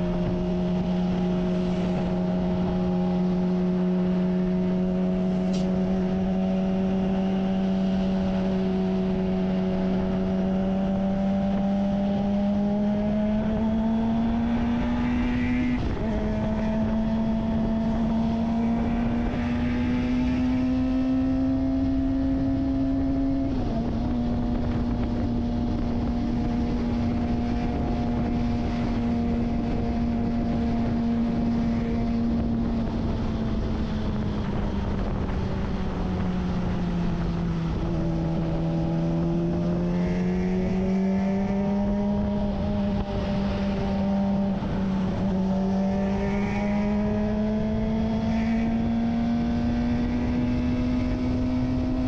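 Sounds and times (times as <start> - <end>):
motorcycle engine running: 15.6 - 52.0.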